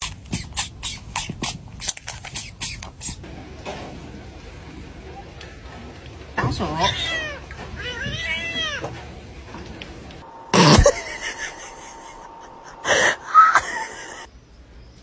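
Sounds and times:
cat meowing: 6.7 - 8.9.

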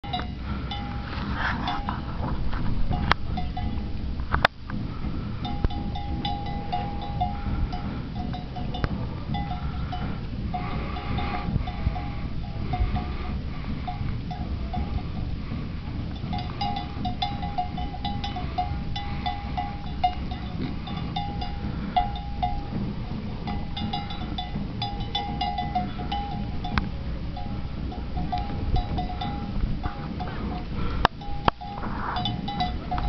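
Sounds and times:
wind rumbling on microphone: 0.0 - 33.0.

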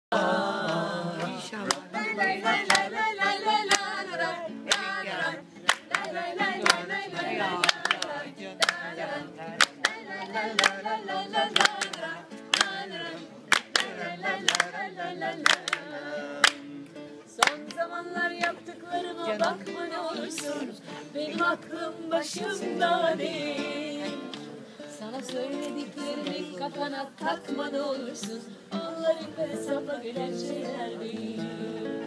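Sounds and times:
acoustic guitar: 0.1 - 32.0
group singing: 0.1 - 32.0
hand claps: 0.6 - 4.0, 4.7 - 5.0, 5.6 - 9.0, 9.6 - 16.7, 17.4 - 17.8, 18.4 - 18.6, 19.4 - 19.6, 20.3 - 20.6, 25.1 - 26.5.

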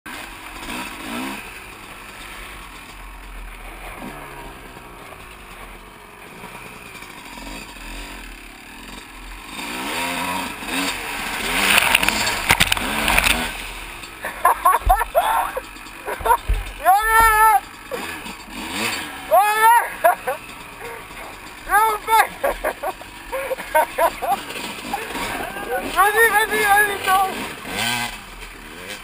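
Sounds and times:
motocross bike engine revving: 0.1 - 29.0
sharp knocks: 16.1 - 17.4.

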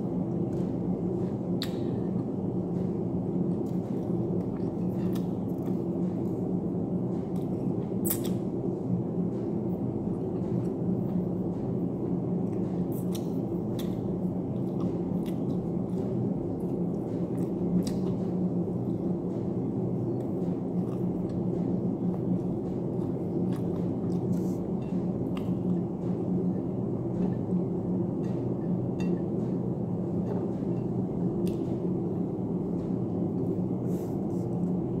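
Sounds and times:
steady low hum: 0.0 - 35.0
person chewing crunchy food: 20.1 - 26.3.

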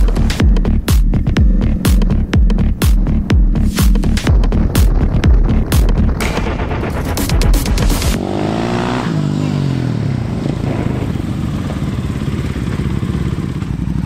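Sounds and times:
music with heavy beat: 0.0 - 8.5
motorcycle engine throbbing: 0.0 - 14.0.

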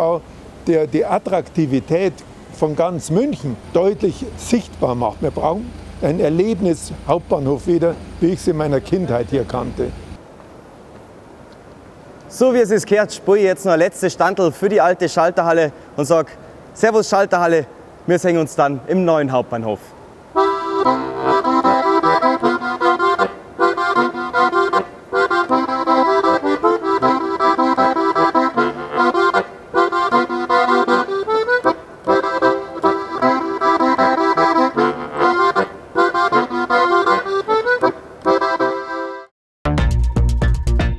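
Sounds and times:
accordion playing a tune: 1.0 - 10.2, 20.4 - 39.3.

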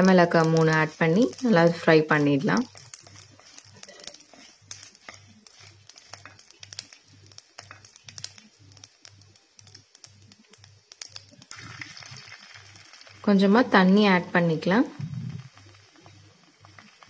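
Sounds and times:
wooden spatula stirring: 0.0 - 11.5
seeds popping in hot oil: 0.0 - 17.0
faint low pulse: 14.9 - 15.6.

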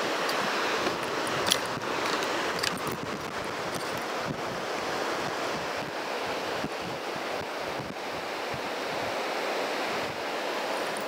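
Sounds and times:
wind buffeting microphone: 0.0 - 9.2
river water rushing over rocks: 0.0 - 11.0.

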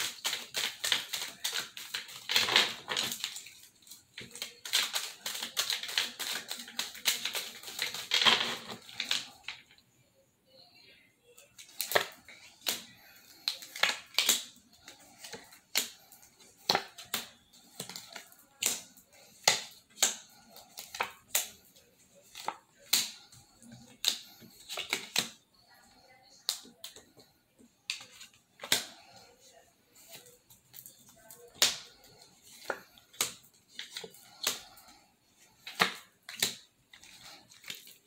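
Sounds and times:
paper cards snapping and slapping: 0.0 - 3.6, 4.2 - 9.6, 11.6 - 21.6, 22.3 - 25.4, 27.9 - 29.2, 31.6 - 35.0, 35.6 - 38.0.

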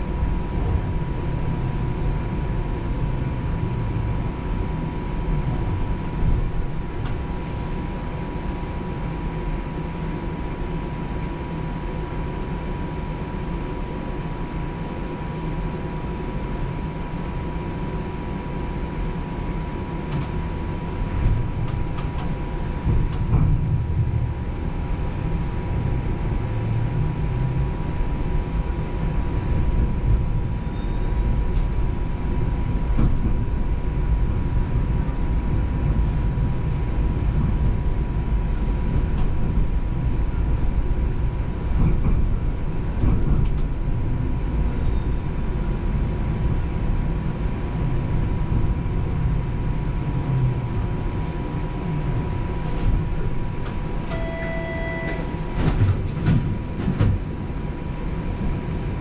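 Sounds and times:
streetcar rumbling on rails: 0.0 - 59.0
high hum: 50.8 - 55.7.

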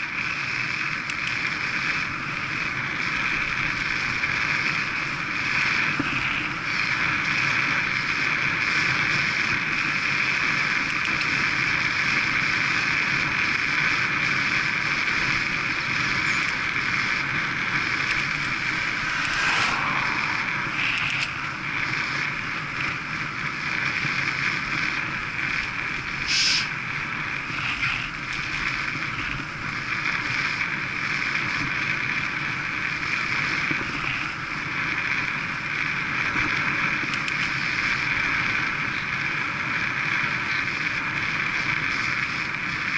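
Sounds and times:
bicycle tyre noise on tarmac: 0.0 - 42.9
wind rush: 16.0 - 29.8.

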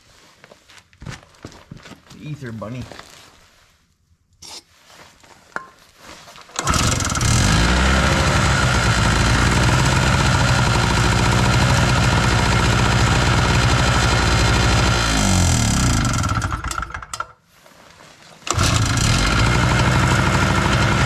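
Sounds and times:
starting fluid spraying: 6.5 - 17.1, 18.5 - 21.0
generator engine running: 6.6 - 17.1, 18.5 - 21.0.

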